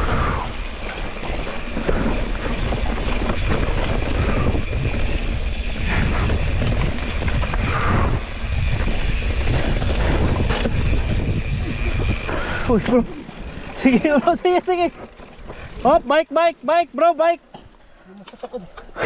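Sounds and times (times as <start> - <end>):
wind over microphone: 0.0 - 13.8
bike tyres rumbling on dirt: 0.0 - 17.2
bike rattling: 0.0 - 19.0.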